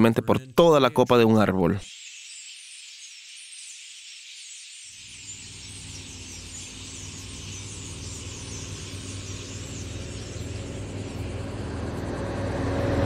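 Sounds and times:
birds chattering in high chirps: 0.0 - 12.1
low steady rumble: 6.9 - 13.0.

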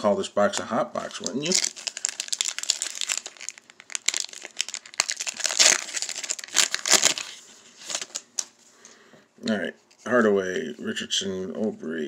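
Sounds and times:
foil wrapper crinkling and tearing: 1.1 - 8.5.

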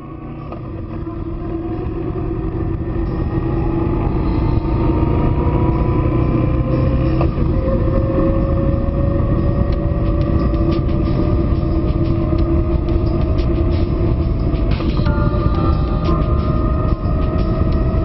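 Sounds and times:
motorcycle engine accelerating: 0.0 - 18.0
wind and road noise on microphone: 0.0 - 18.0.

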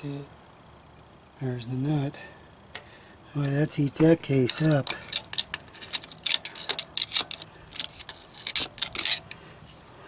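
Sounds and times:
metal tool clicking and scraping: 4.3 - 9.4.

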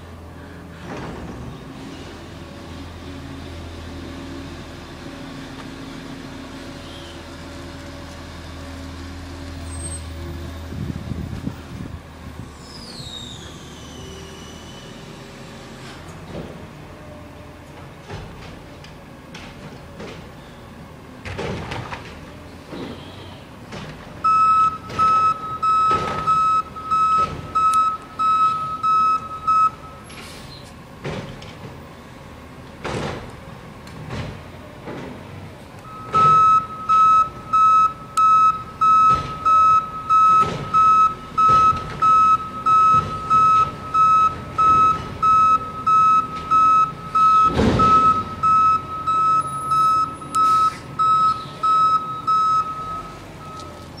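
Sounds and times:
reversing alarm beeping: 24.2 - 30.1, 35.8 - 54.0.

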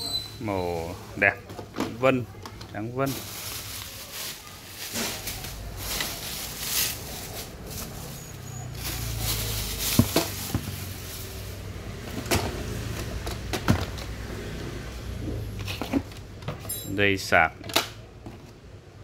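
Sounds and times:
bubble wrap crinkling: 3.0 - 11.8.

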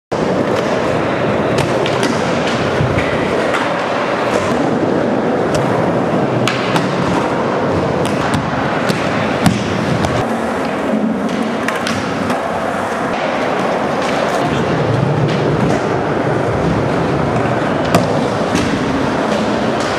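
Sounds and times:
skateboard wheels rolling on concrete: 0.1 - 19.9
sharp skateboard impact: 0.2 - 19.9
skateboard clacking and knocking: 0.2 - 19.9.

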